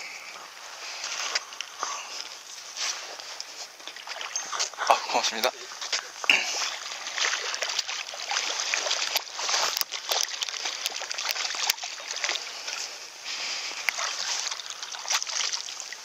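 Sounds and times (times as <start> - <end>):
fish thrashing and splashing: 3.2 - 16.0.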